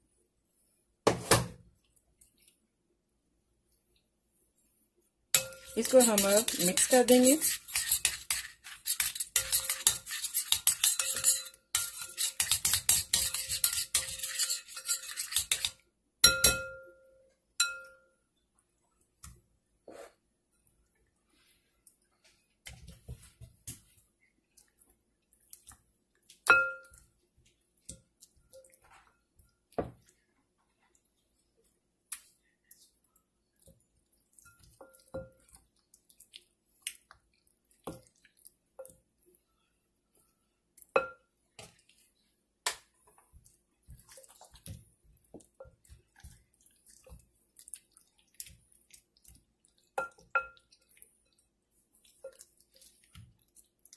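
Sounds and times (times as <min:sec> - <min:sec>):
spoon clinking on glass: 0:05.4 - 0:07.1, 0:09.4 - 0:17.0, 0:17.6 - 0:18.1, 0:26.5 - 0:27.0
spoon scraping paste in glass bowl: 0:05.4 - 0:15.8.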